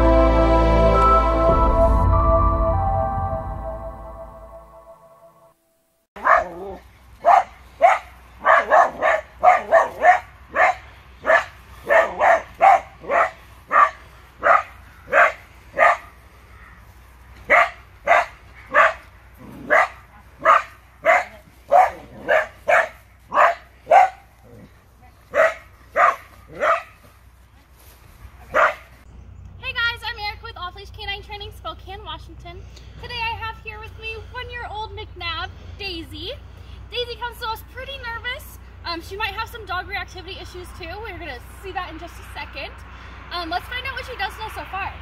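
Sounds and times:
dog barking sharply: 6.2 - 6.5, 7.2 - 16.1, 17.5 - 19.0, 19.7 - 24.2, 25.3 - 27.0, 28.5 - 28.9.

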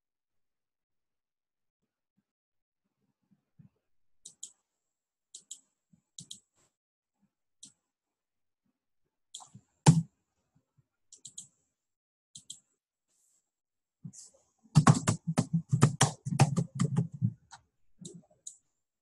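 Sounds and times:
computer mouse buttons clicking: 6.2 - 6.4, 11.2 - 11.5, 12.4 - 12.6.

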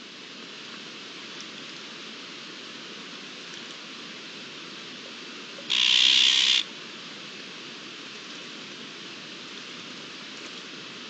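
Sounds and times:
steady outdoor hiss: 0.0 - 11.0
magpie harsh rasping call: 5.7 - 6.6.

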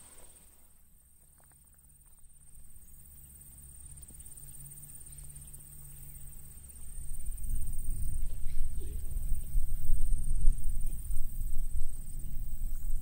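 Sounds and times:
cicadas droning: 0.0 - 13.0
low hum: 0.0 - 13.0
low rumble: 5.4 - 13.0.

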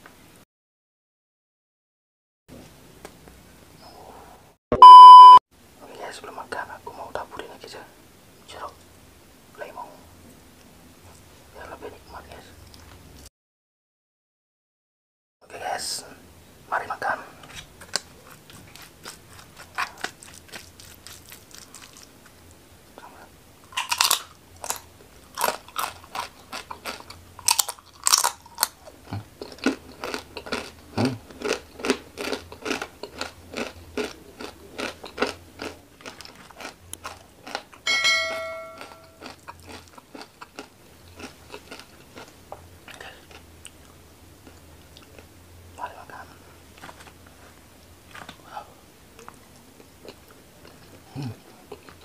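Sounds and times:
brief high-pitched sound: 4.7 - 5.4
crunching and chewing cracker: 17.5 - 22.6, 23.6 - 37.8, 38.8 - 45.3, 49.2 - 52.0.

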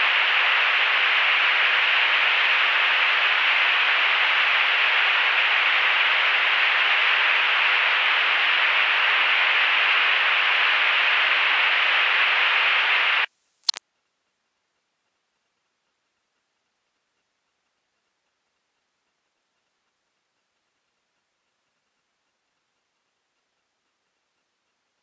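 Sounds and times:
cockpit noise hiss: 0.0 - 13.8.

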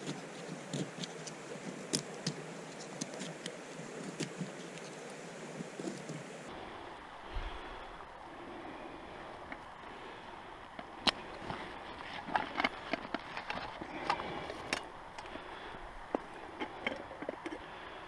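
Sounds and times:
camp gear clicks and knocks: 0.0 - 5.0, 10.8 - 15.4, 16.1 - 17.7
steady outdoor hiss: 0.0 - 18.0.

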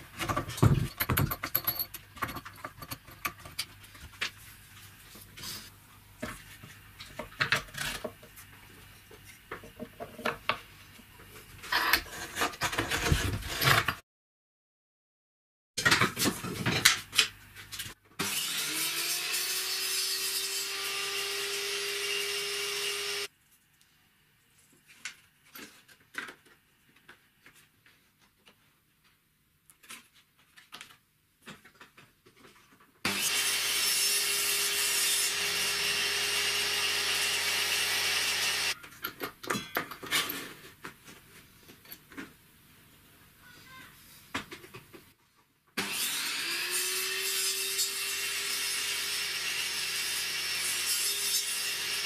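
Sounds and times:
handling clicks and knocks: 0.2 - 4.4
power tool sawing wood: 18.2 - 23.3, 33.1 - 38.8, 45.8 - 52.0.

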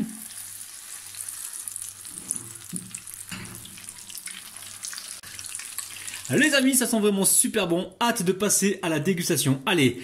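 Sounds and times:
batter sizzling in hot oil: 0.0 - 6.9.

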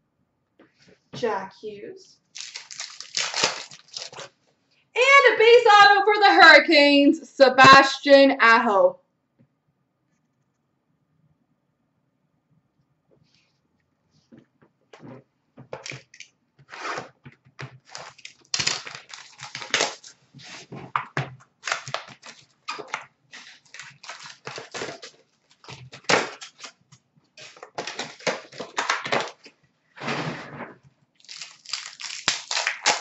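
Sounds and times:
wrapper tearing and crinkling: 2.3 - 4.3, 17.8 - 20.7, 21.6 - 26.8, 27.4 - 29.5, 31.2 - 33.0
cards being handled: 2.4 - 4.3.

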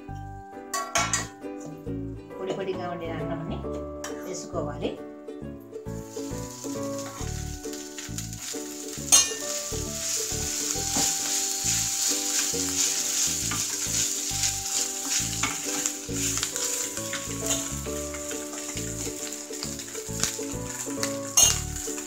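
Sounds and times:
spatula knocking pan: 0.7 - 1.3, 9.1 - 22.0
rice sizzling in oil: 5.9 - 22.0
spatula scraping pan: 6.0 - 20.4.

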